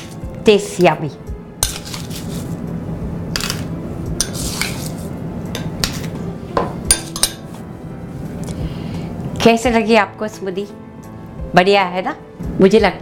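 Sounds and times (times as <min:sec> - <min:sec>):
crushed ice scooped: 0:01.7 - 0:02.6
metal spoon clinking on glass: 0:06.9 - 0:07.4.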